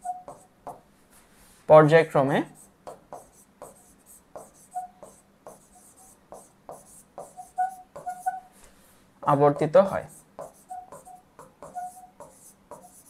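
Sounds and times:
marker tip squeaks: 0.0 - 0.5, 4.4 - 6.2, 7.2 - 8.5, 10.4 - 12.2
marker writing on a board: 0.0 - 0.8, 2.5 - 8.5, 9.2 - 13.0.

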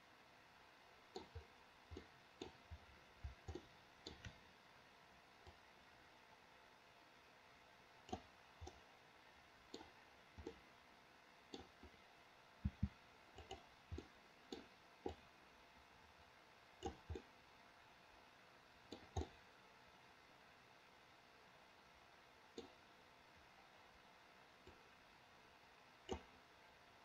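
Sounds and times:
computer mouse clicking: 1.1 - 4.4, 8.0 - 8.9, 9.7 - 10.6, 11.5 - 12.0, 12.6 - 15.2, 16.8 - 17.3, 18.9 - 19.4, 22.6 - 22.8, 26.0 - 26.4.

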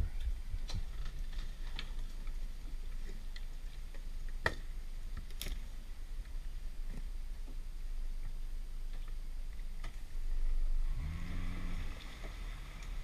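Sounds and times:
low rumble: 5.8 - 13.0.

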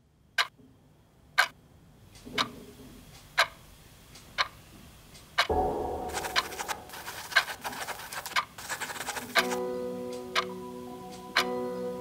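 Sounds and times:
wall clock ticking: 1.3 - 5.5, 6.2 - 9.6
deep low hit with held tone: 5.5 - 8.2.

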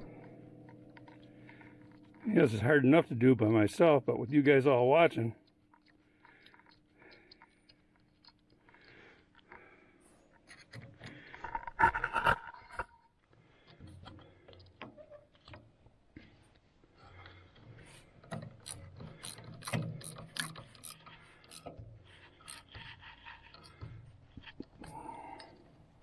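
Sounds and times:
ratchet wrench clicking: 17.2 - 24.0.

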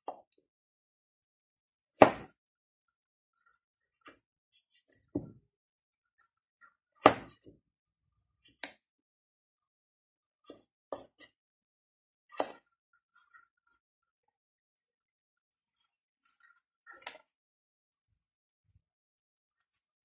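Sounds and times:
knife knocking on cutting board: 5.2 - 5.4.

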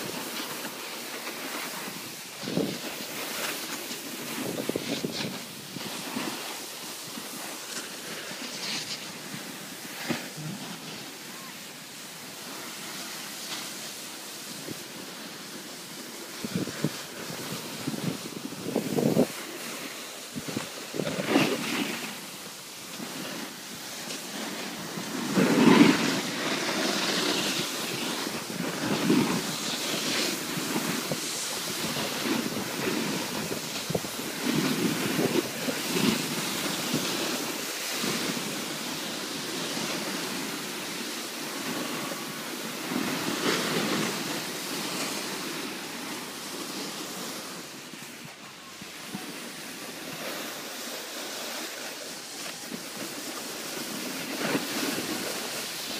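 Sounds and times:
snowboard scraping on snow: 0.0 - 55.9
wind on microphone: 1.7 - 12.0, 15.9 - 22.4, 23.0 - 41.0.

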